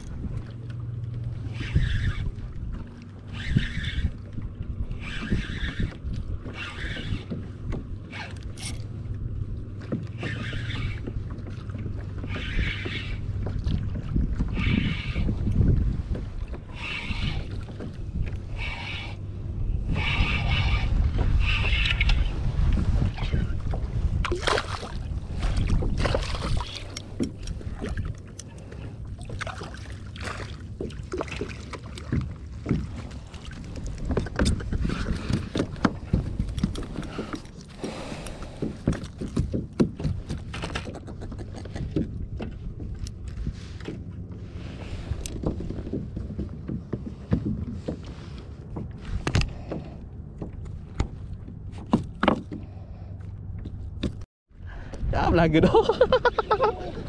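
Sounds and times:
wind buffeting microphone: 0.0 - 52.8, 53.4 - 57.0
water against plastic hull: 0.0 - 57.0
fishing gear clicks and knocks: 5.2 - 9.2, 31.9 - 44.2, 45.1 - 54.2.

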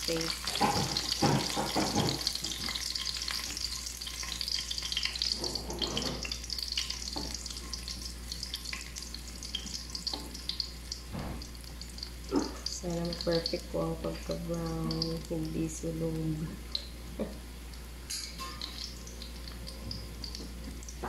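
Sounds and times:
garlic sizzling in oil: 0.0 - 21.0
spatula scraping pan: 5.3 - 6.4.

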